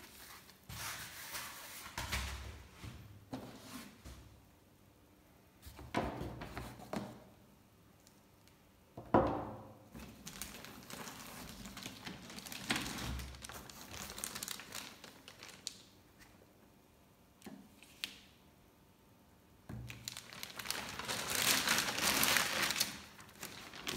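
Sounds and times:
plastic bag crinkling: 10.0 - 15.9, 19.8 - 23.9.

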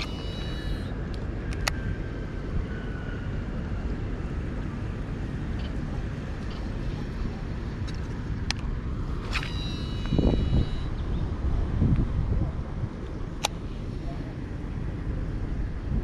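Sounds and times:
wind buffeting microphone: 0.0 - 16.0
sharp click: 9.2 - 10.5, 13.4 - 13.6.

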